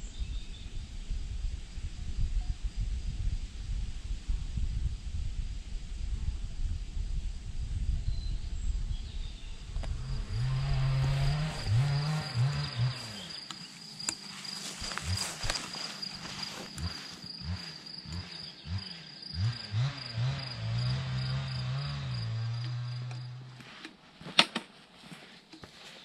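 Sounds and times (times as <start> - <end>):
high-pitched insect trill: 9.8 - 23.4
flying insect buzzing: 9.8 - 23.5.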